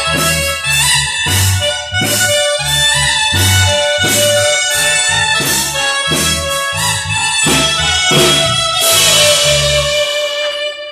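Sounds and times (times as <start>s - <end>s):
deep bass line: 0.0s - 10.0s
drum kit beat: 0.0s - 10.2s
held melody notes: 0.0s - 10.9s.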